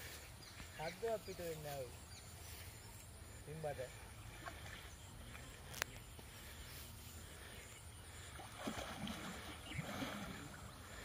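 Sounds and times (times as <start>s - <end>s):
water sloshing and splashing: 8.1s - 11.0s.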